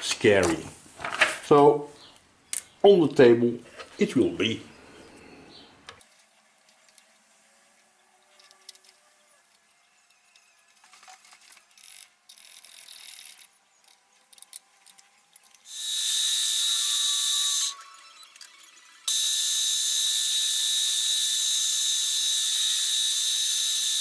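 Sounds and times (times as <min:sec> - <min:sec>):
milling machine cutting metal: 0:15.4 - 0:24.0.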